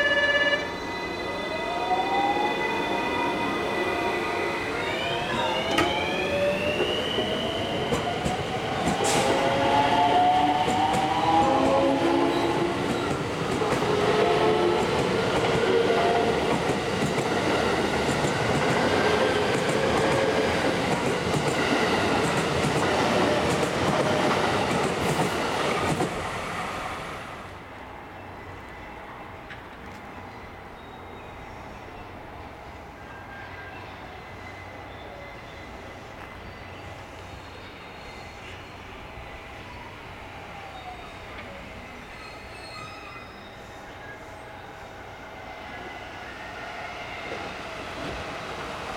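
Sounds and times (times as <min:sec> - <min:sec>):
electric train inverter whine: 0:00.0 - 0:17.9.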